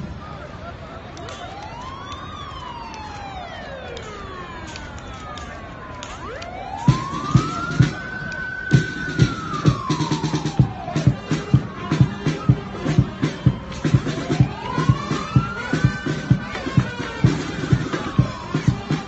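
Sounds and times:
siren wailing: 0:01.4 - 0:19.0
heavy low beats: 0:06.8 - 0:19.0.

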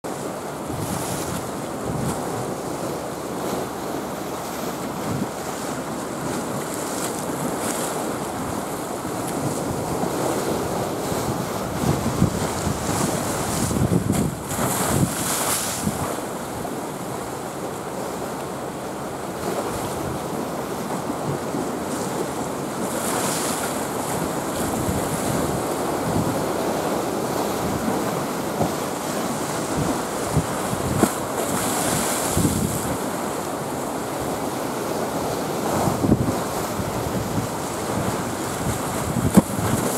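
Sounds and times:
wind buffeting microphone: 0:00.6 - 0:02.8, 0:06.1 - 0:16.2, 0:24.1 - 0:33.2, 0:35.6 - 0:39.9.

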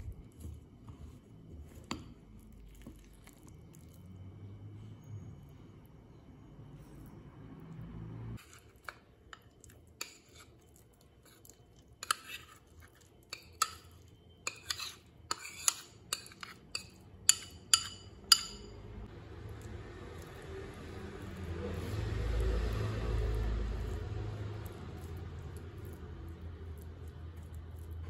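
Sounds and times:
metal spoon clinking on bowl and pan: 0:13.3 - 0:18.8.

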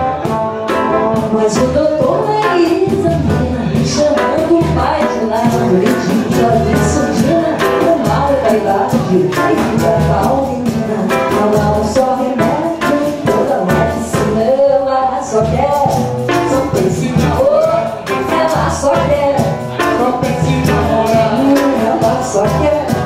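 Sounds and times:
trombone: 0:00.0 - 0:14.4
electric guitar: 0:00.0 - 0:23.0
pandeiro: 0:00.0 - 0:23.0
surdo drum: 0:00.0 - 0:23.0.

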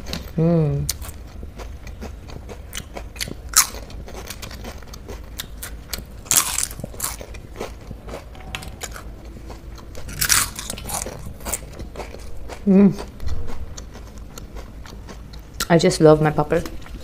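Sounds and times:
crunching of crisp papad: 0:01.9 - 0:15.3.

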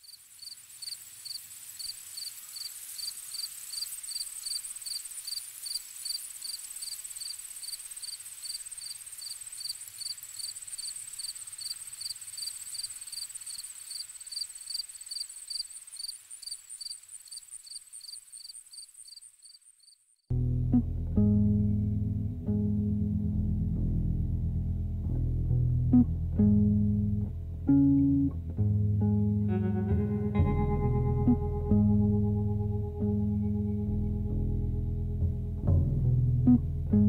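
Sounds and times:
crickets chirping: 0:00.0 - 0:20.3.

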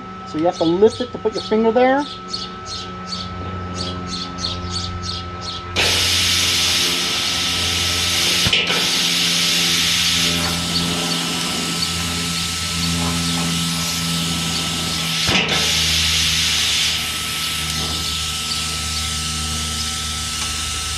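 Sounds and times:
motor hum: 0:00.0 - 0:20.9
compressed air hissing: 0:05.8 - 0:20.9
plasma torch hissing pulses: 0:05.8 - 0:20.9.

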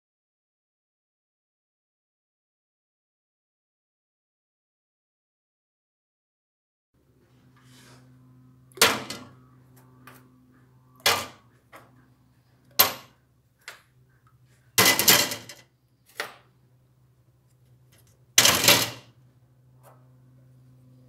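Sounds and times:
faint steady hum: 0:07.0 - 0:21.0
metal parts dropping into tin can: 0:14.8 - 0:15.6, 0:18.4 - 0:19.1.

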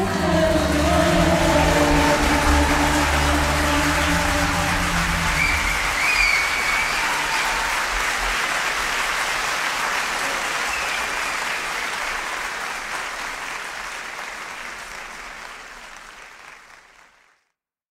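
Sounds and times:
audience applauding: 0:00.0 - 0:17.4.

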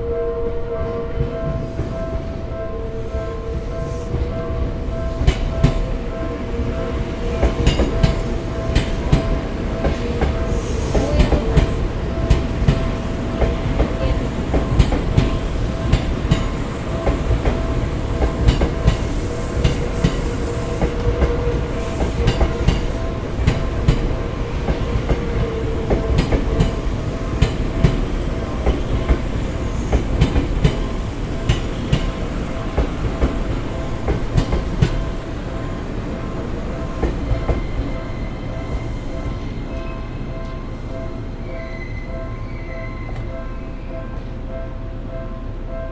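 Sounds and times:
crossing warning bell: 0:00.0 - 0:45.9
train wheels clicking over rail joints: 0:18.2 - 0:24.1
train wheel squeals: 0:37.2 - 0:40.2, 0:41.2 - 0:44.0.

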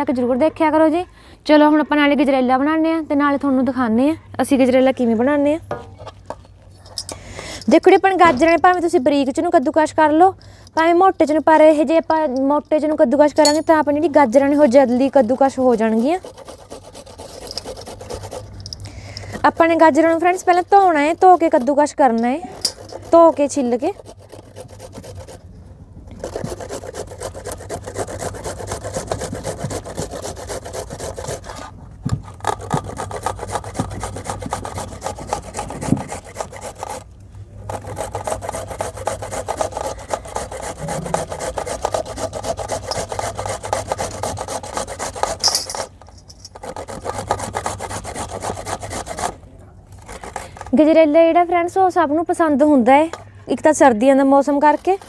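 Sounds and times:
carrots grated on metal grater: 0:13.9 - 0:25.4, 0:37.7 - 0:49.3.

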